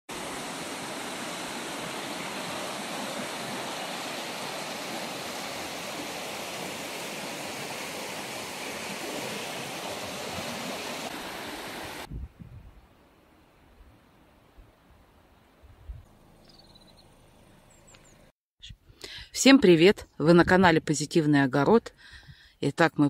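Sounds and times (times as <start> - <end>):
river water rushing over stones: 0.1 - 12.1.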